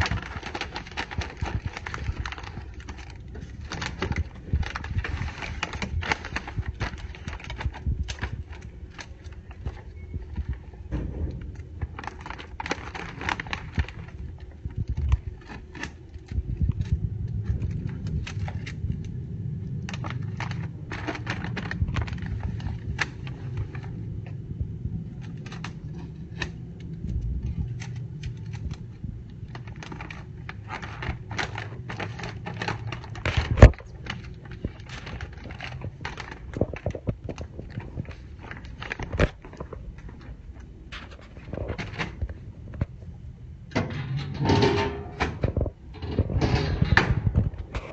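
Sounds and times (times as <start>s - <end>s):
plastic mailer crinkling: 0.0s - 43.1s.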